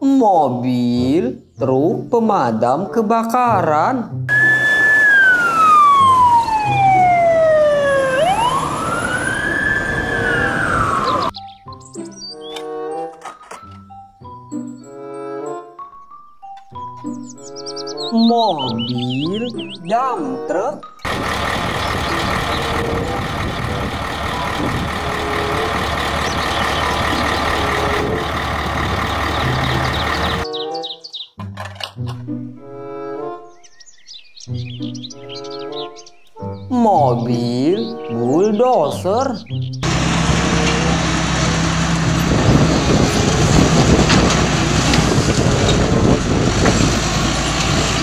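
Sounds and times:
fire engine siren wailing: 4.3s - 11.4s, 21.1s - 30.5s, 39.8s - 48.0s
road and engine noise: 4.3s - 15.4s, 20.9s - 30.6s, 37.7s - 48.0s.

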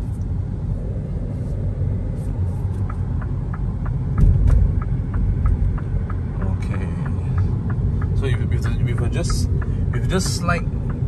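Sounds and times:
road and tyre rumble in car: 0.0s - 11.0s
light rapid ticking: 2.8s - 11.0s
low thump: 4.1s - 5.8s.

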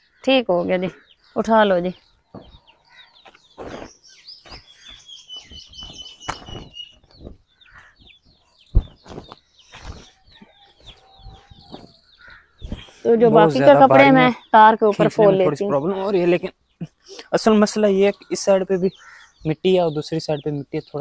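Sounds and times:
birds chirping: 0.0s - 21.0s
knocks and rustles: 8.6s - 10.2s.

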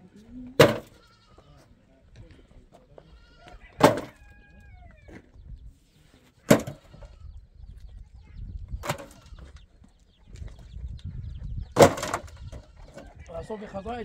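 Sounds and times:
stones clattering into metal wheelbarrow: 0.6s - 1.0s, 6.5s - 6.9s, 11.8s - 12.6s.

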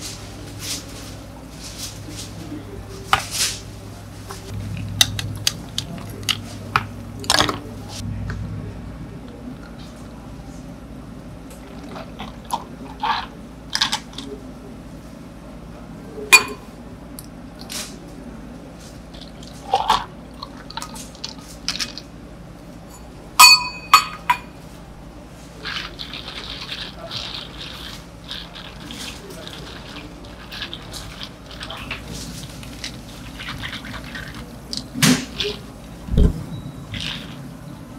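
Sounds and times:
metal pitcher and cups clinking: 16.4s - 16.7s, 22.9s - 24.6s.

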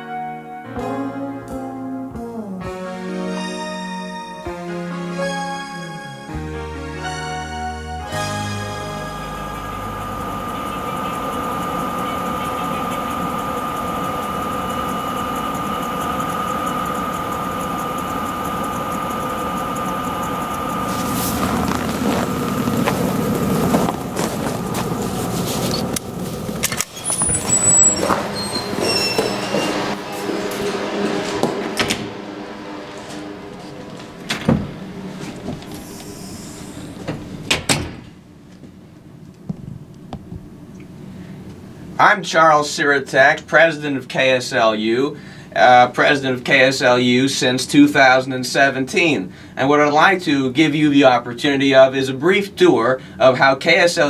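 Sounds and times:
mechanical drone with high whine: 7.0s - 41.0s
footsteps: 20.7s - 32.2s, 32.9s - 36.3s
door squeaking: 26.6s - 30.8s, 33.9s - 38.2s.

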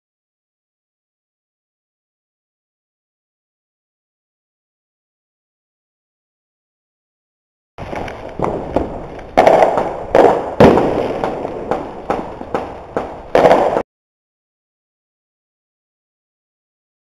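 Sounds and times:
fireworks bangs with echo: 7.8s - 13.8s.

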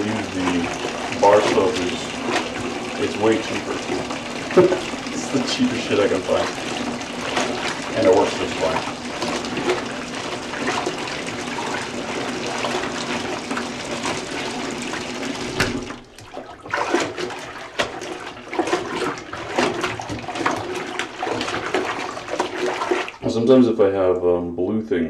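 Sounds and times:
clothes swishing in soapy water: 0.0s - 23.4s
water running into a bucket: 0.0s - 24.4s.

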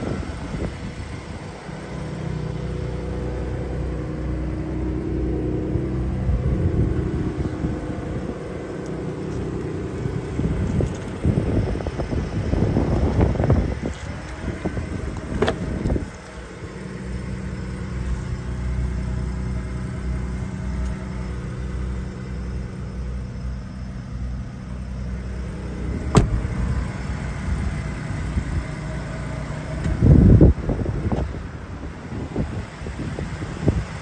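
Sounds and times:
wind noise on microphone: 0.0s - 1.6s, 6.0s - 8.6s, 9.9s - 16.2s, 29.8s - 34.0s
truck engine idling: 0.0s - 34.0s.

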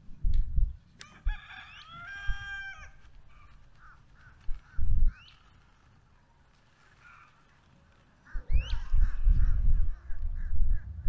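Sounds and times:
low microphone rumbles: 0.0s - 0.8s, 8.5s - 11.0s
rooster crowing: 1.0s - 3.0s.

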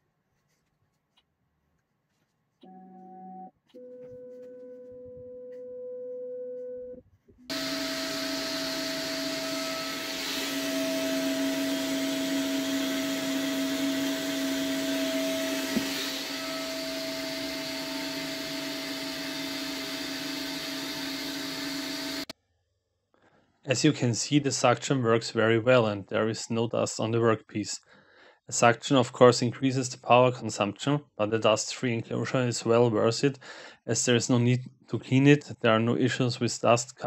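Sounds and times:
router spindle milling wood: 7.5s - 22.3s
vacuum cleaner running: 7.5s - 22.3s.

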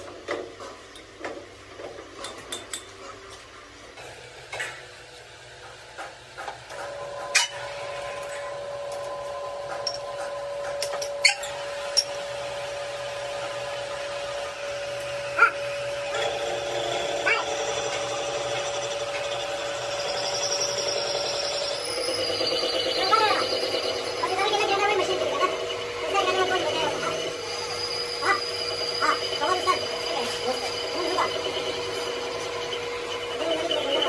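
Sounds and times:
machine whine: 3.7s - 34.0s
metal tools clinking: 9.8s - 10.2s.

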